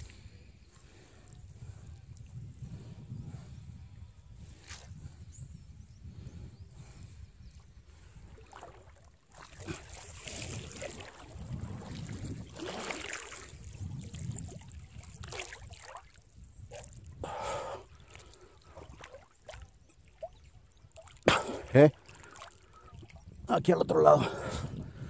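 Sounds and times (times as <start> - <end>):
water sloshing and splashing: 7.9 - 23.5.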